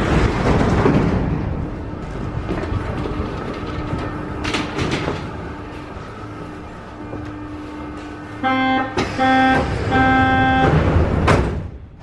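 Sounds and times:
train electrical hum: 0:00.0 - 0:12.0
door warning buzzing beeps: 0:08.4 - 0:10.8.

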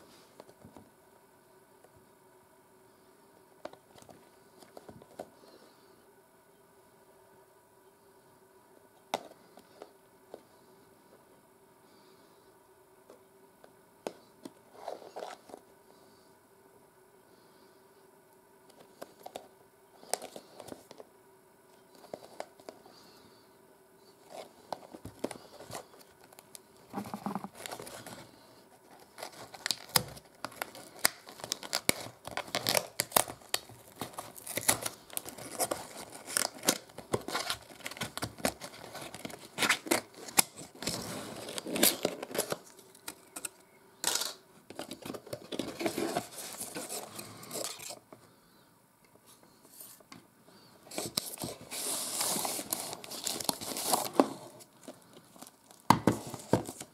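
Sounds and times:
cardboard rustling and crinkling: 0:24.2 - 0:43.5, 0:44.7 - 0:48.0, 0:50.9 - 0:56.9
seal tearing: 0:29.2 - 0:44.4.

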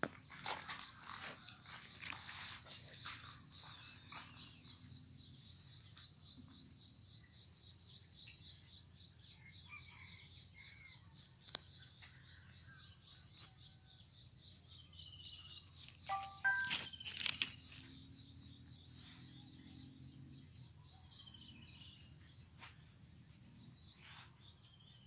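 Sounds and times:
distant bird chirps: 0:14.6 - 0:25.0.

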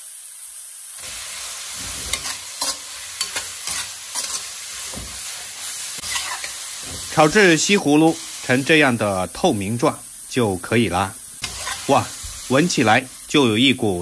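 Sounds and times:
vegetables sizzling in wok: 0:00.0 - 0:14.0
metal ladle scraping wok: 0:01.0 - 0:07.5, 0:11.4 - 0:12.4.

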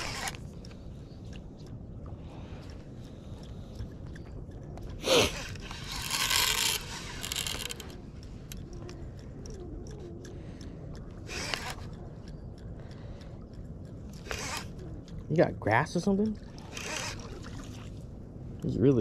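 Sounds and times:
fishing reel drag buzzing: 0:00.0 - 0:00.8, 0:05.1 - 0:08.0, 0:11.2 - 0:11.9, 0:14.2 - 0:14.9, 0:16.6 - 0:17.6.

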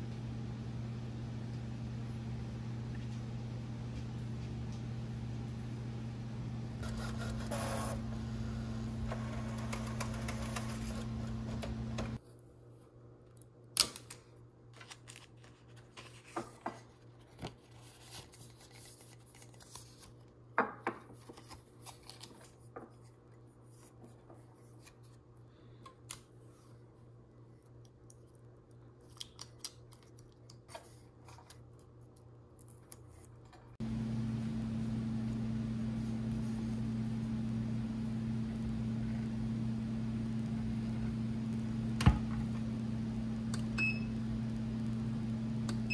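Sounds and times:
printer humming: 0:06.7 - 0:12.2, 0:33.8 - 0:45.9
mug and paper handling: 0:14.8 - 0:20.2.

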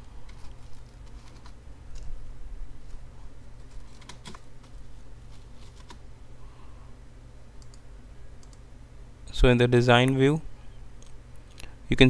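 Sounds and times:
low steady hum: 0:00.0 - 0:12.0
computer keyboard keystrokes: 0:03.6 - 0:04.8.

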